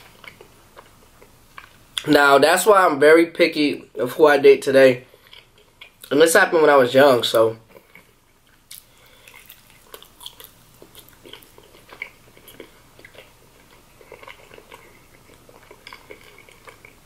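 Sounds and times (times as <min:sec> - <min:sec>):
quiet chewing: 0:00.0 - 0:02.0, 0:05.1 - 0:06.1, 0:07.7 - 0:17.0.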